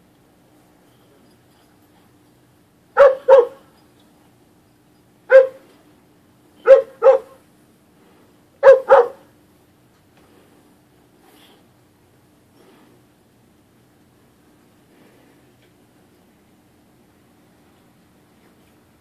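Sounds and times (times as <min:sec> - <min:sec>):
dog barking: 0:03.0 - 0:03.7, 0:05.3 - 0:05.6, 0:06.6 - 0:07.4, 0:08.6 - 0:09.3.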